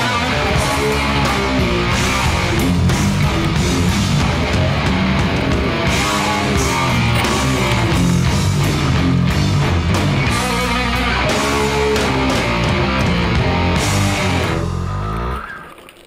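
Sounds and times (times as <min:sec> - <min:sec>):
rock music with guitar: 0:00.0 - 0:15.8.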